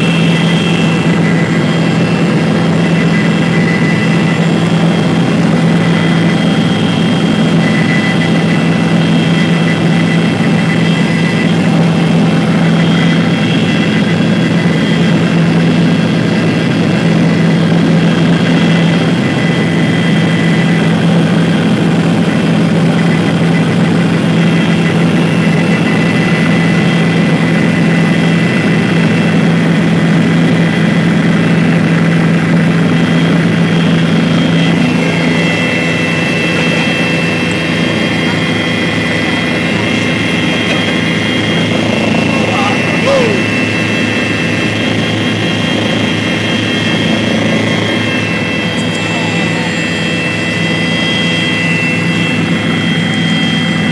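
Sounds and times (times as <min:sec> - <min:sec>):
helicopter drone from cabin: 0:00.0 - 0:53.9
high whining tones: 0:33.5 - 0:53.9.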